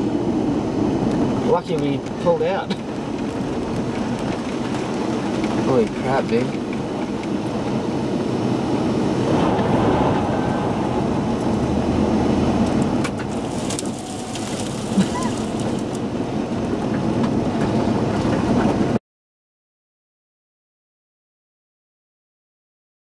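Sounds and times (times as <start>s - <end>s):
car road and engine noise: 0.0s - 19.0s.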